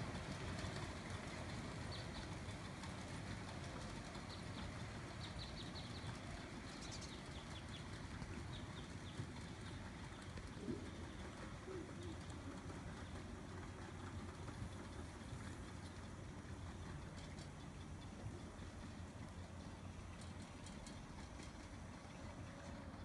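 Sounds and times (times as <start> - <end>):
small birds chirping: 1.9 - 2.4, 4.1 - 23.0
dove cooing: 10.1 - 13.6.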